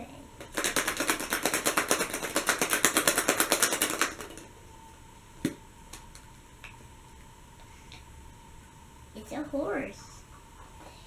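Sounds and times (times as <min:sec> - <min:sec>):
toy rattling inside plastic egg: 0:00.4 - 0:04.4.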